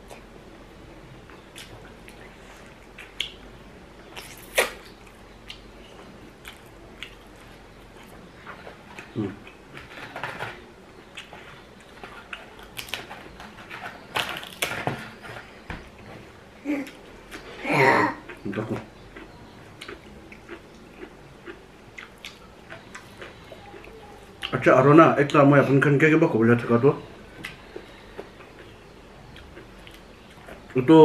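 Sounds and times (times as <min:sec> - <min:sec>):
chewing and lip-smacking: 0:06.4 - 0:09.6, 0:18.2 - 0:24.6.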